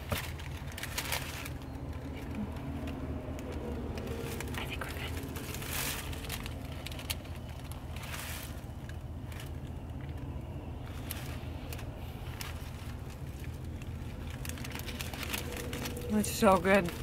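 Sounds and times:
paper wrapper rustling: 0:00.0 - 0:17.0
vehicle cab hum: 0:00.0 - 0:17.0.

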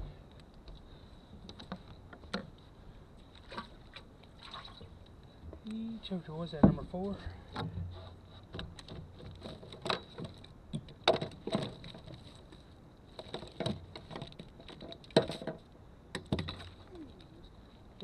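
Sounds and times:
knocks and clicks in a boat: 0:01.4 - 0:02.6, 0:06.6 - 0:16.8.

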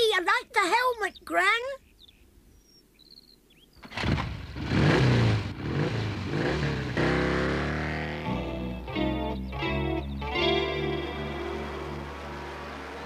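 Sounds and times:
faint bird chirps: 0:00.8 - 0:03.8
small motorbike engine revving: 0:03.8 - 0:08.4.

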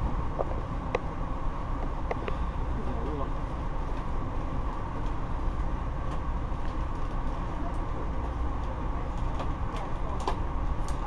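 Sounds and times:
freight cars rumbling: 0:00.0 - 0:11.0.

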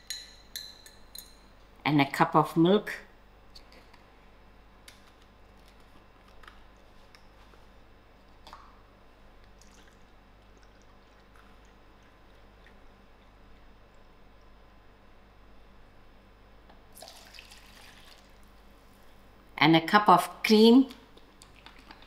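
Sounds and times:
milk pouring into a cup: 0:09.4 - 0:13.4, 0:16.9 - 0:18.6.

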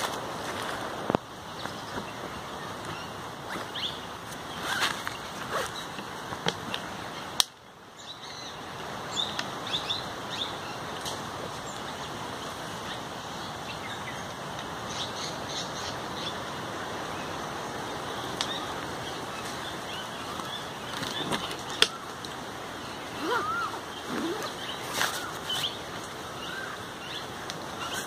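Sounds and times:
small birds chirping: 0:00.0 - 0:28.0
steady background hiss: 0:00.0 - 0:28.0
backpack rustling: 0:03.5 - 0:05.9.

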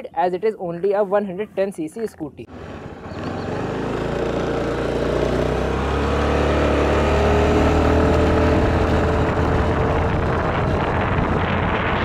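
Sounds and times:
scooter engine accelerating: 0:02.5 - 0:12.0.

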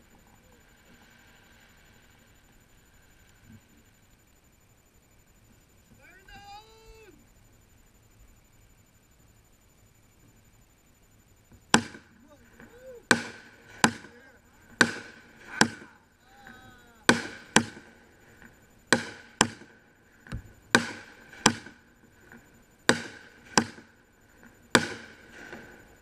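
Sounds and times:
fireworks bangs with echo: 0:13.0 - 0:16.0, 0:17.0 - 0:18.0, 0:18.9 - 0:19.7, 0:20.7 - 0:21.8, 0:22.8 - 0:23.9, 0:24.7 - 0:25.7.

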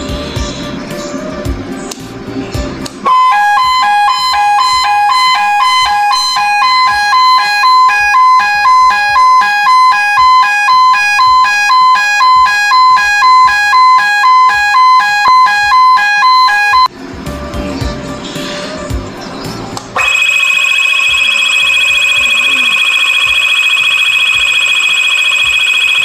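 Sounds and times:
two-tone electronic alarm: 0:03.0 - 0:16.9, 0:20.0 - 0:26.0.

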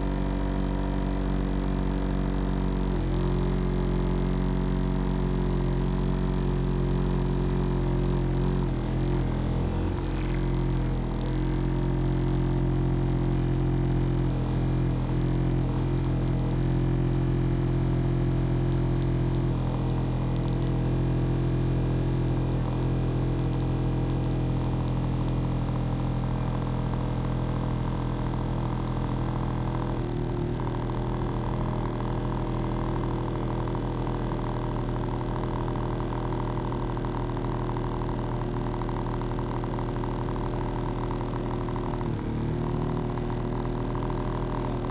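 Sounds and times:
engine droning: 0:05.5 - 0:23.6.

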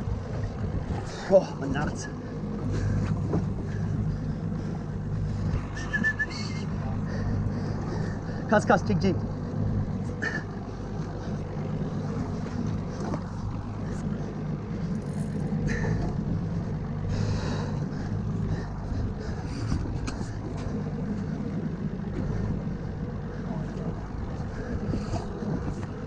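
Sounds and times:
boat engine idling: 0:00.0 - 0:26.0
water noise: 0:00.0 - 0:26.0
wind: 0:00.0 - 0:26.0.

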